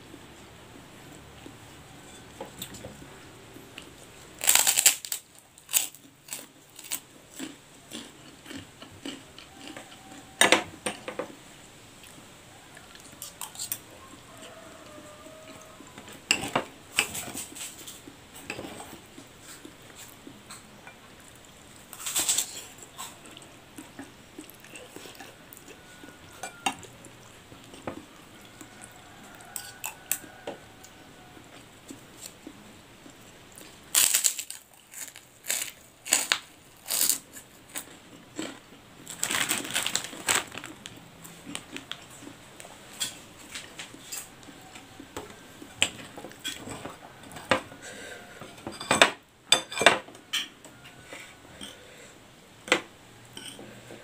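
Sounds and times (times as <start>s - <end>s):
cutlery clinking on plates: 26.3s - 26.9s, 48.5s - 50.5s, 52.7s - 53.8s.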